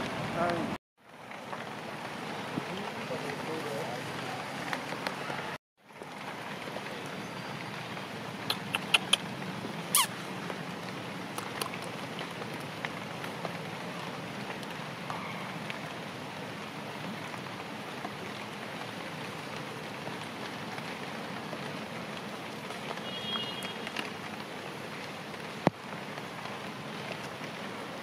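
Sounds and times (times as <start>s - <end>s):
steady rain: 0.0s - 28.0s
quick falling squeak: 9.9s - 10.1s.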